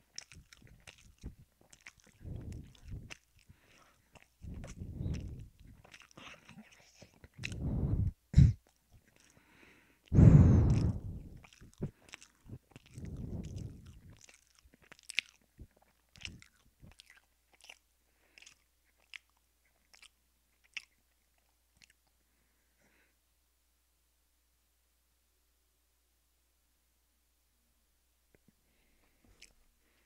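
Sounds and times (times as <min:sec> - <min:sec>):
wet mouth clicks: 0:00.0 - 0:09.4, 0:10.1 - 0:17.8, 0:18.4 - 0:22.1
close chewing of food: 0:00.0 - 0:22.3, 0:28.8 - 0:30.0.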